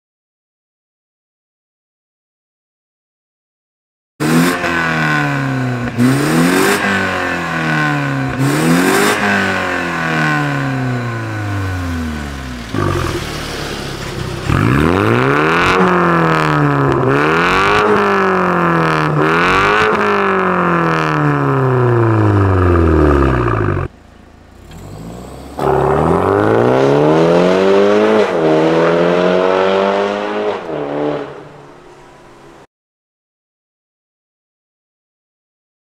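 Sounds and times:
car engine revving: 0:04.2 - 0:32.6
exhaust cracks: 0:04.5 - 0:28.4.

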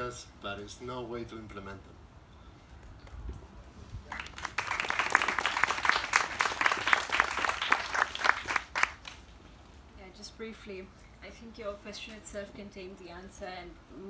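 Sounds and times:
audience applauding: 0:04.1 - 0:09.2.

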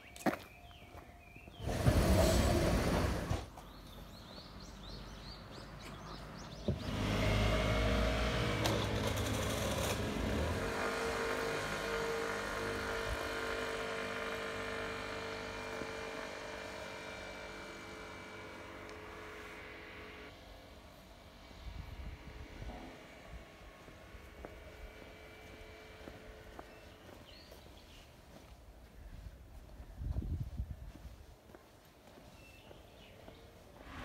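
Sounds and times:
vehicle rumbling by: 0:04.2 - 0:28.0.

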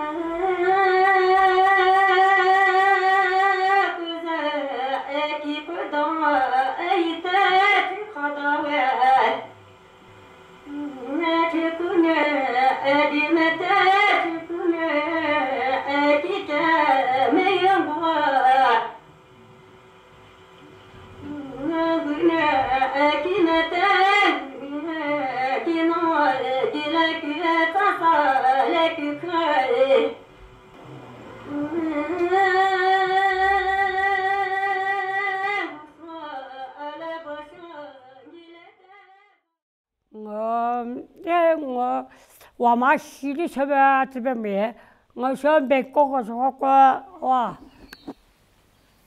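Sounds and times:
elderly woman singing folk song: 0:00.0 - 0:09.4, 0:10.7 - 0:19.0, 0:21.2 - 0:30.2, 0:31.5 - 0:39.0.

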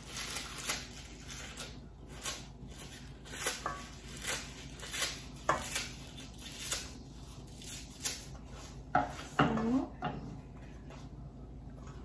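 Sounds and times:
scissors snipping leafy greens: 0:00.1 - 0:07.0, 0:07.6 - 0:08.3.

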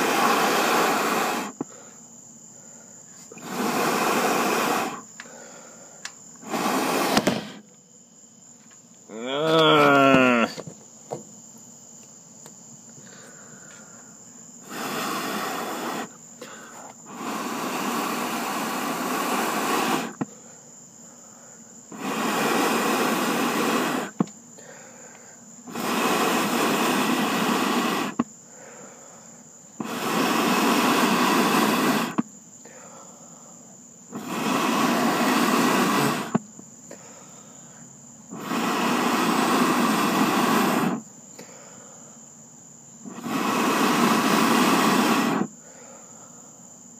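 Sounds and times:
air blown onto charcoal: 0:00.0 - 0:02.0, 0:03.0 - 0:07.7, 0:14.5 - 0:20.4, 0:21.8 - 0:28.8, 0:29.7 - 0:32.3, 0:34.0 - 0:37.2, 0:38.2 - 0:41.1, 0:43.0 - 0:45.6.

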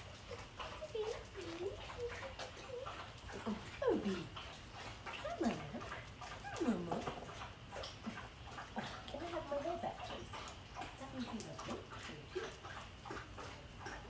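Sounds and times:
dog whining: 0:05.1 - 0:07.3.

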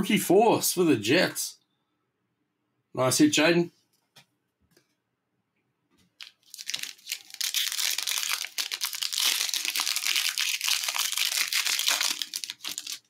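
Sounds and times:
wrapper tearing and crinkling: 0:06.2 - 0:13.0.

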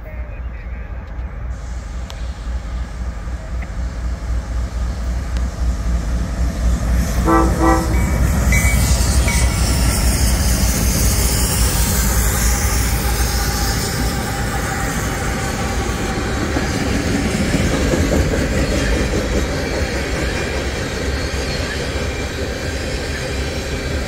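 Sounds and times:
freight train rumbling past: 0:00.0 - 0:24.0
locomotive horn blasts: 0:07.2 - 0:08.3.

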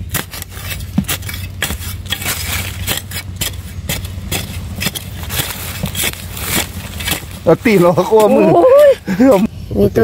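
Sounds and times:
spade chopping into gravelly soil: 0:00.0 - 0:08.5
loose dirt scattering: 0:00.0 - 0:09.5.

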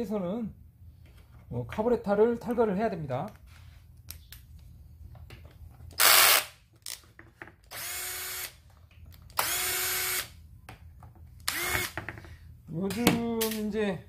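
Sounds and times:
cordless driver motor whine: 0:07.7 - 0:08.5, 0:09.4 - 0:10.3, 0:11.5 - 0:12.0.

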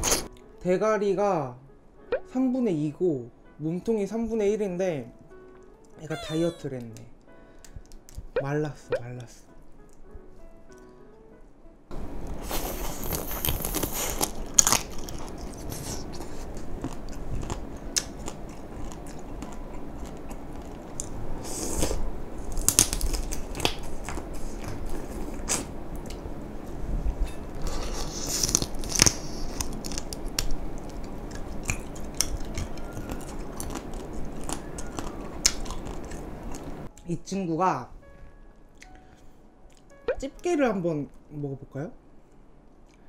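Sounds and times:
wet chewing and sucking: 0:00.0 - 0:00.3, 0:12.3 - 0:26.2, 0:27.6 - 0:36.9.

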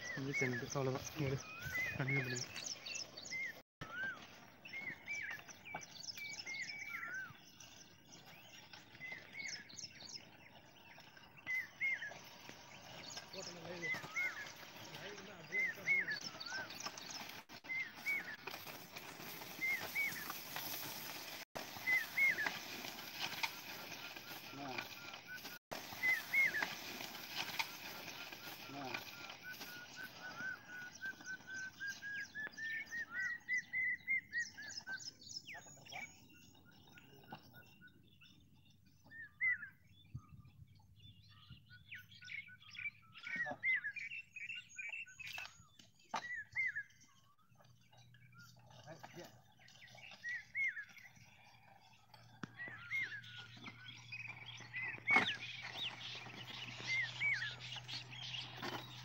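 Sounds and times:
open-field noise: 0:00.0 - 0:40.9, 0:45.1 - 0:59.0
small birds chirping: 0:00.0 - 0:59.0.

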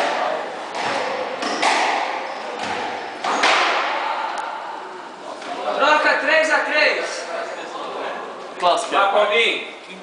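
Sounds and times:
squash ball hits with echo: 0:00.7 - 0:04.2.

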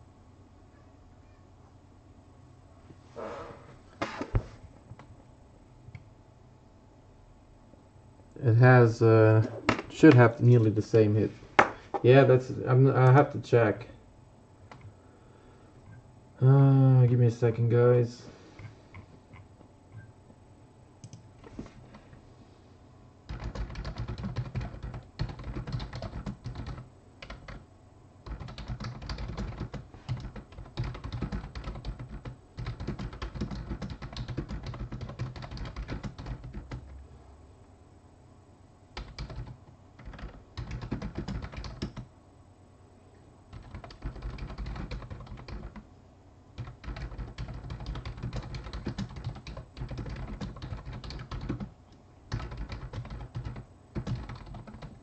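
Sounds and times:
typing on computer keyboard: 0:23.3 - 0:27.6, 0:28.2 - 0:36.9, 0:39.0 - 0:42.1, 0:43.5 - 0:45.8, 0:46.6 - 0:51.7, 0:52.3 - 0:55.0.

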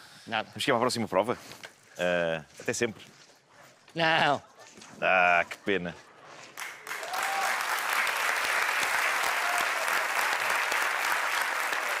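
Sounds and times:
studio audience applauding: 0:06.6 - 0:12.0.

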